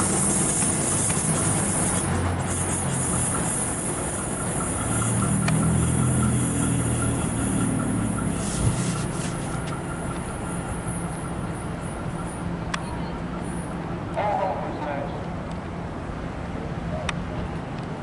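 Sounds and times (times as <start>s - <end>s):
diesel locomotive rumbling: 0.0s - 18.0s.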